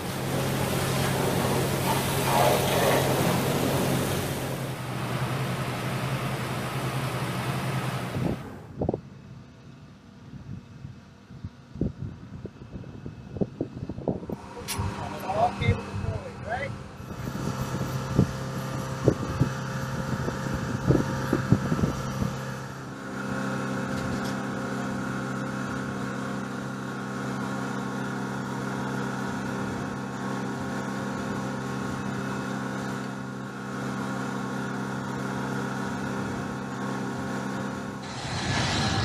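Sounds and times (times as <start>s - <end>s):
machine hum with held tones: 0.0s - 9.0s.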